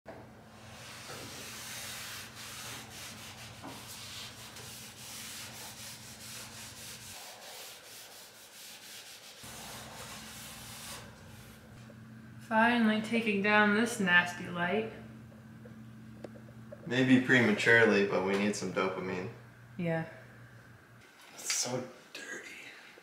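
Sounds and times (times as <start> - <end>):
cloth wiping wood: 0.5 - 11.6.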